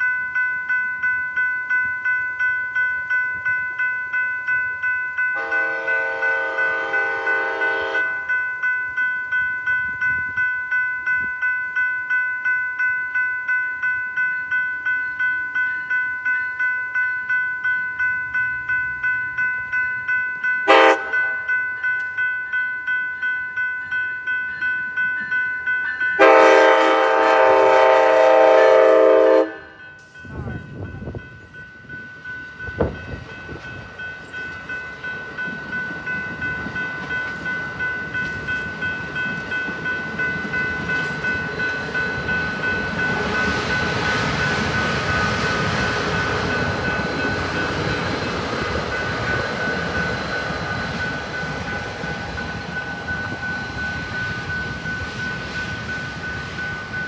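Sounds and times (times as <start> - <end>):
crossing bell ringing: 0.0 - 57.0
train horn blast: 5.4 - 8.2, 20.7 - 21.3, 26.2 - 29.8
train wheels on rails: 23.5 - 57.0.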